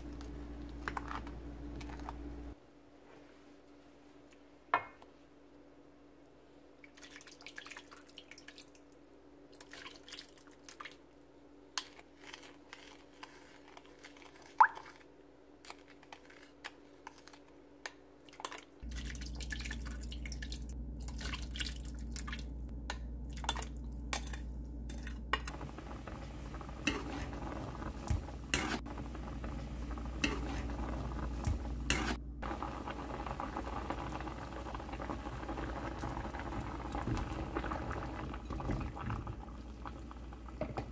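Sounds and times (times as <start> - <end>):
pot bubbling: 18.4 - 40.9
steady low hum: 18.9 - 40.6.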